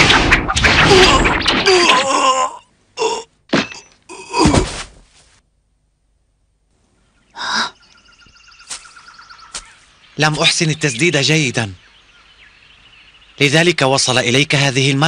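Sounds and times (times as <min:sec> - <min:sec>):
bird trilling: 0:07.0 - 0:13.5.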